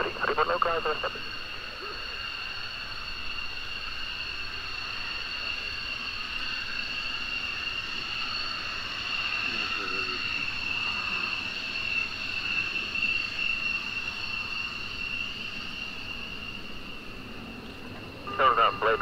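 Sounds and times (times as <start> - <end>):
jet engine whining: 0.0 - 19.0.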